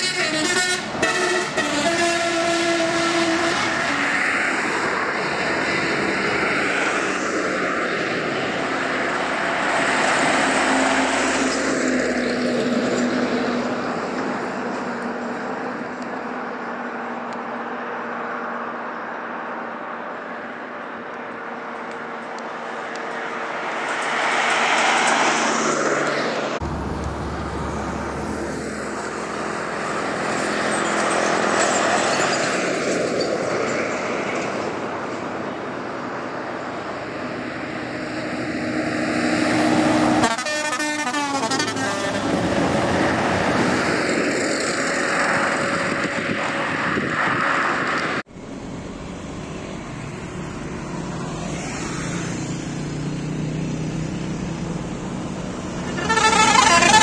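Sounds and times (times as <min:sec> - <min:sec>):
vehicle horn: 0:00.0 - 0:04.1, 0:40.2 - 0:42.4, 0:55.8 - 0:57.0
buses driving past: 0:00.0 - 0:57.0.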